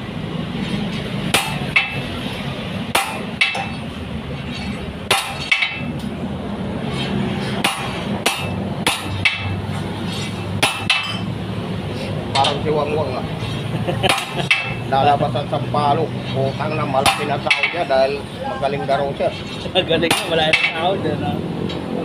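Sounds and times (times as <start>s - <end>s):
hammer striking steel bar: 1.3s - 2.0s, 2.9s - 3.8s, 4.5s - 6.1s, 7.5s - 11.3s, 14.0s - 14.9s, 17.0s - 17.9s, 20.1s - 20.8s
low hum: 5.7s - 16.6s.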